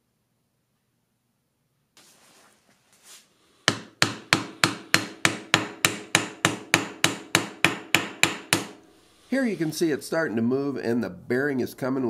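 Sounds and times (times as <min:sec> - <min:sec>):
mallet striking steel: 0:03.7 - 0:08.8.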